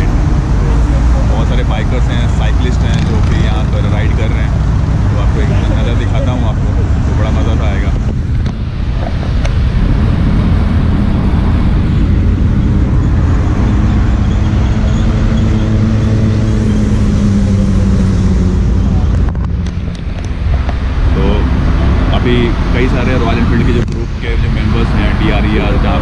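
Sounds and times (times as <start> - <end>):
motorcycle engine running: 0.0 - 26.0
wind and road noise: 0.0 - 26.0.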